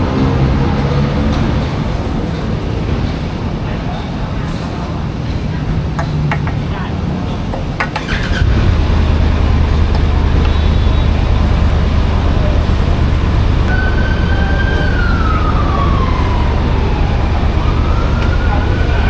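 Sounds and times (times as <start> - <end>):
siren wailing: 13.6 - 19.0.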